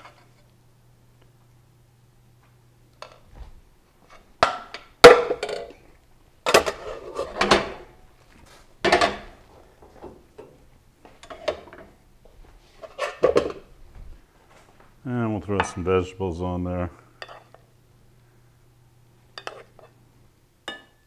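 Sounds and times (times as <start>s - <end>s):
dishes and utensils clattering: 6.5s - 7.9s, 8.8s - 9.4s, 10.4s - 12.0s, 12.8s - 13.7s, 19.3s - 20.0s, 20.6s - 21.0s.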